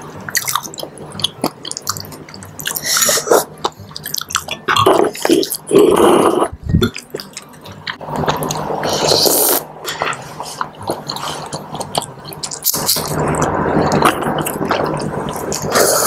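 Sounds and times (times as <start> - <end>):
noodles slurped: 8.1 - 16.0.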